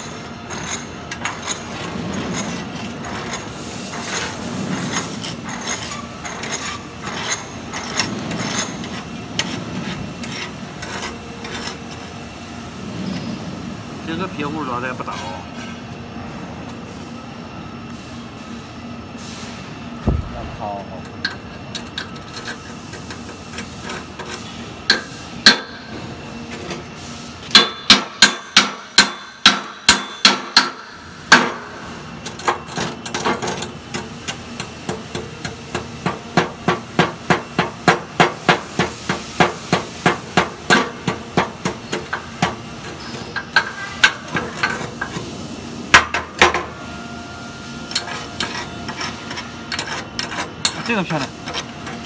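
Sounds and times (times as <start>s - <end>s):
hammer striking steel rebar: 27.5s - 30.8s.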